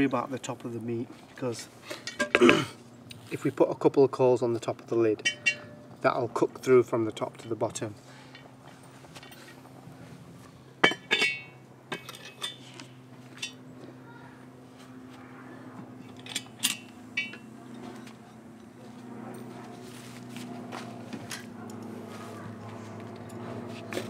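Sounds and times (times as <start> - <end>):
metallic strikes ringing: 5.2 - 6.0, 16.7 - 17.5.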